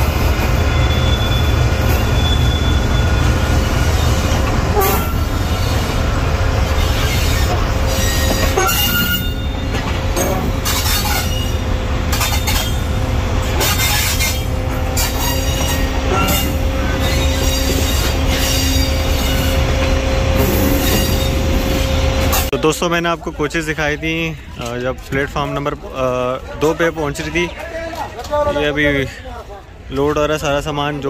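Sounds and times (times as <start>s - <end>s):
train wheels rumbling on rails: 0.0s - 31.0s
thin wheel squeal: 0.7s - 6.0s, 6.8s - 12.9s, 13.6s - 19.7s, 20.4s - 21.4s.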